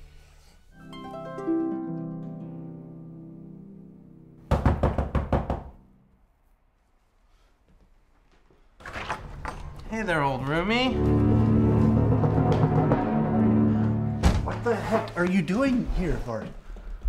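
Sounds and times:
knocking on door: 4.5 - 5.8
harp glissando: 10.6 - 14.6.

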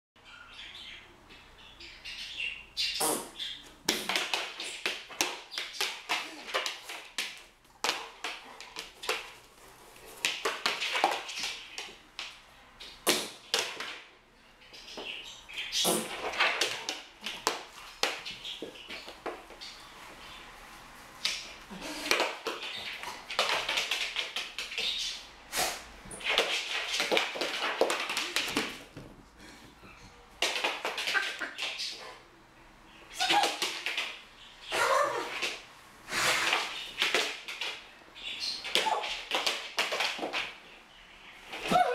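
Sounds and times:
paws and hands slapping wood floor: 3.8 - 12.4, 21.2 - 25.0, 26.1 - 29.2, 30.4 - 31.9
dog claws clicking on wooden floor: 21.2 - 25.0, 26.1 - 29.1
paws slapping hands: 26.2 - 29.1
dog noisy bursts: 36.1 - 36.8.

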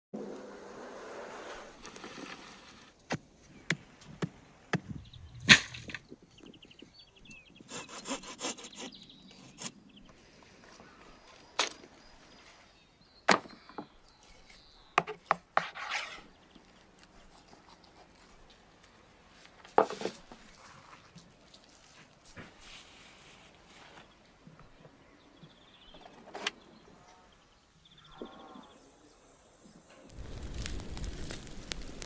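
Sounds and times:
soil tipping from wheelbarrow: 1.8 - 6.2
knife whittling wooden stake: 4.8 - 6.0
knife scraping into carcass: 15.6 - 16.3.

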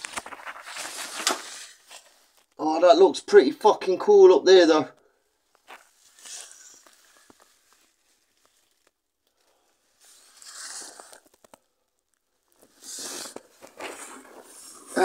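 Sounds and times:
small clicks of grit: 5.5 - 14.2
clothes scraping against rock: 5.6 - 8.8, 12.6 - 15.0.

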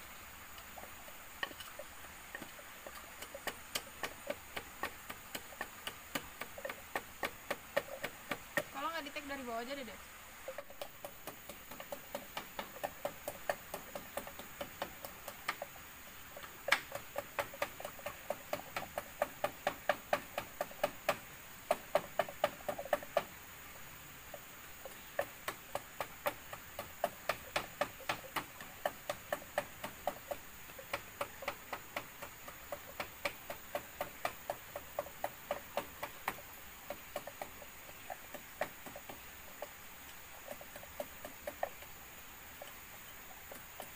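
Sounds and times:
wooden pestle pounding in mortar: 2.3 - 9.0, 10.5 - 15.7, 16.4 - 23.4, 24.9 - 39.7.

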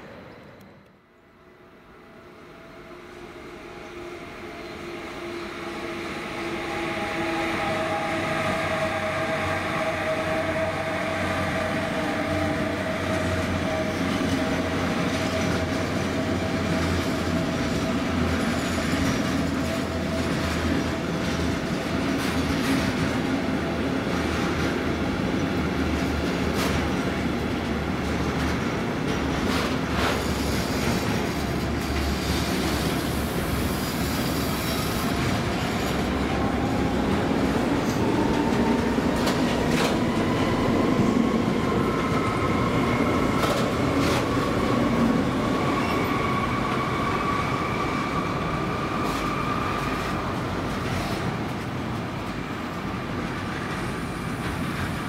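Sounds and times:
train wheels rumbling on rail: 2.9 - 55.0.

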